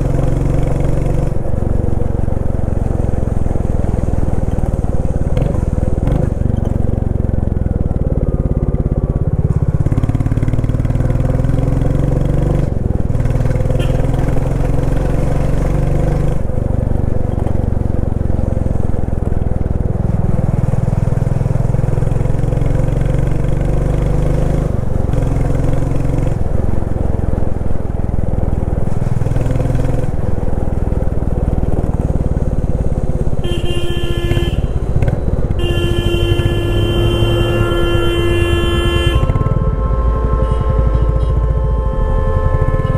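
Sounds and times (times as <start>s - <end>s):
horn honking: 13.6s - 15.0s, 33.3s - 42.9s.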